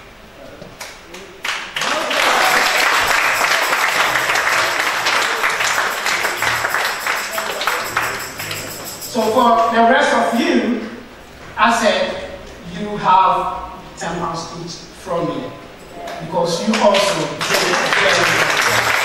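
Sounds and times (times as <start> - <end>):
congregation applauding: 1.4 - 9.6, 16.7 - 19.0.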